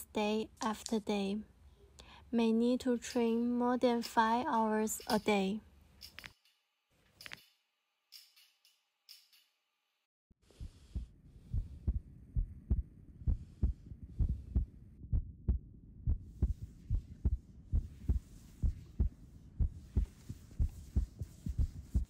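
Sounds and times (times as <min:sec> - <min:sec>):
low steady hum: 0:10.5 - 0:22.0.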